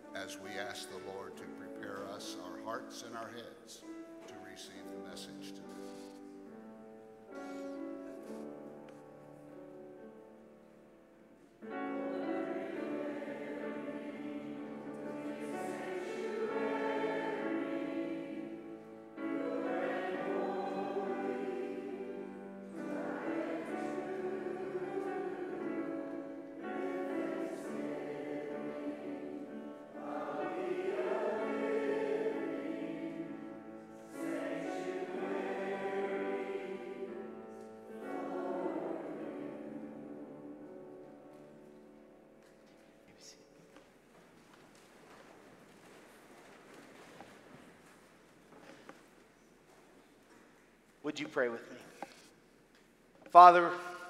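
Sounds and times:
congregation singing a hymn: 0.0s - 10.4s, 11.6s - 42.3s.

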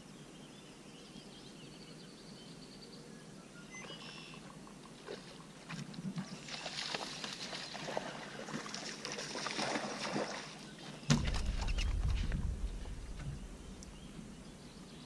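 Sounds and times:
fish splashing at water surface: 6.4s - 13.4s
low rumbling: 11.1s - 15.0s.

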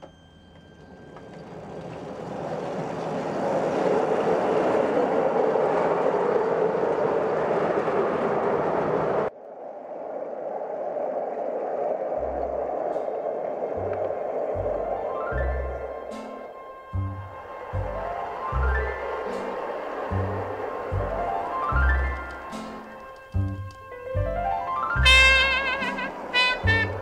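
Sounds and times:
model train running on track: 0.0s - 9.3s, 14.6s - 26.8s
background music: 13.8s - 27.0s.

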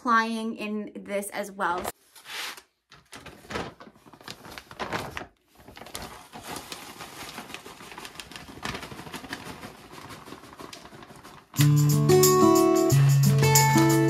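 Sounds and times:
plastic bag crinkling: 2.9s - 11.6s.

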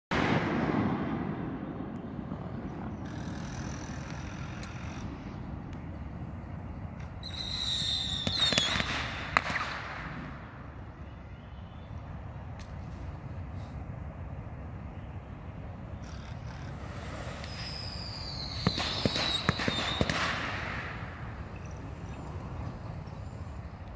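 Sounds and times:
firework bang: 0.1s - 1.9s, 17.4s - 21.4s
firework pops and cracks: 7.0s - 10.2s, 17.3s - 21.2s
firework whistle: 7.2s - 9.9s, 16.5s - 22.1s.

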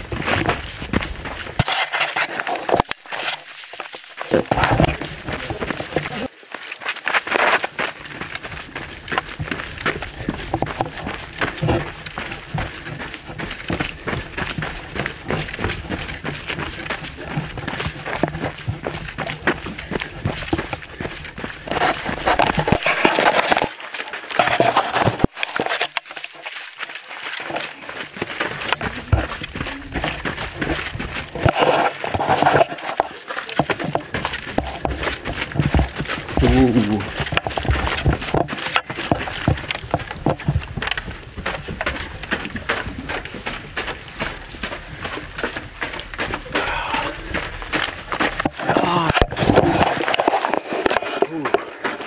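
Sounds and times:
knocks and rubbing: 0.0s - 6.3s, 21.6s - 23.8s, 24.4s - 26.1s, 28.6s - 44.4s, 45.0s - 52.0s
footsteps crunching on sandy trail: 0.0s - 52.0s.

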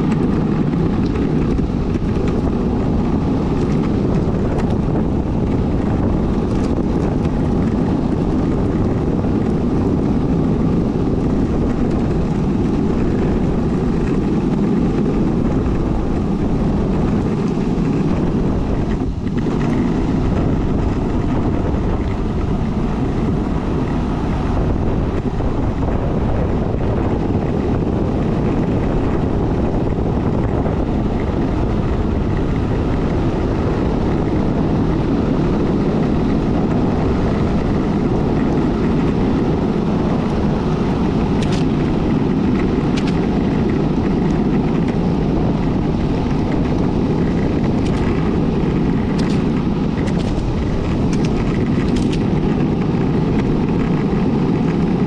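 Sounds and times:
longboard wheels rolling on asphalt: 0.0s - 55.0s
wind buffeting microphone: 0.0s - 55.0s.

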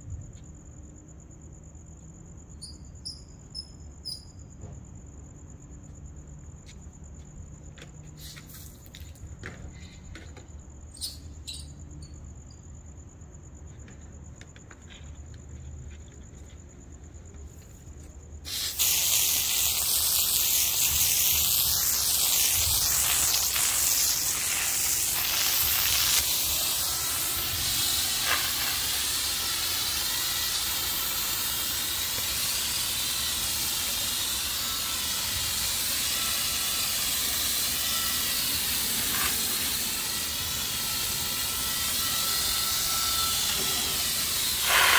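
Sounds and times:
crickets trilling: 0.0s - 44.9s
hose water spraying on concrete: 18.5s - 44.9s.

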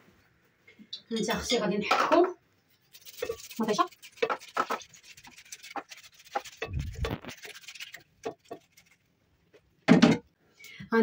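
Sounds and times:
tomato rasping on metal grater: 2.9s - 9.0s.

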